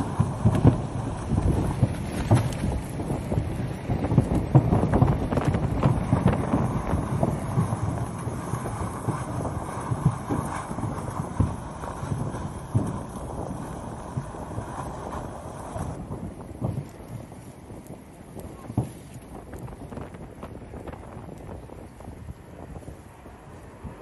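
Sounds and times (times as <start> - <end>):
lava thuds and crackling pops: 0.0 - 22.8
volcano low rumble: 0.0 - 24.0.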